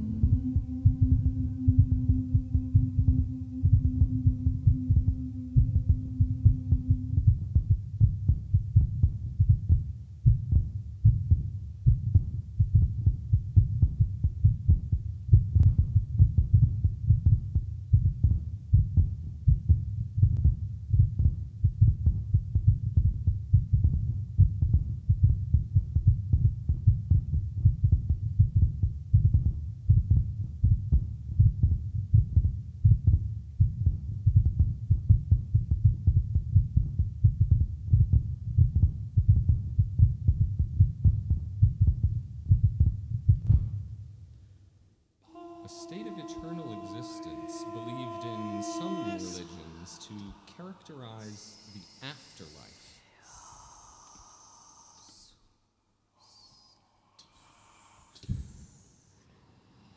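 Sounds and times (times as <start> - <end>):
vocal ensemble singing: 0.0 - 7.1, 45.2 - 55.2
low throbbing pulse: 0.0 - 44.2, 45.2 - 52.2.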